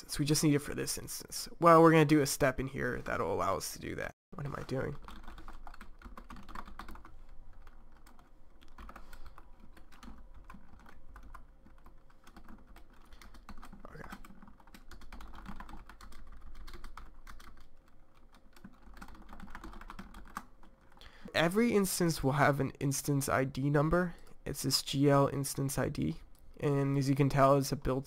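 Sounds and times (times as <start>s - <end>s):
computer keyboard typing: 4.5s - 21.0s.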